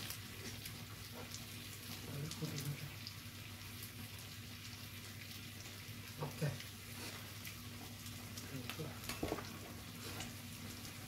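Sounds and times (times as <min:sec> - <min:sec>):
meat sizzling on grill pan: 0:00.0 - 0:11.0.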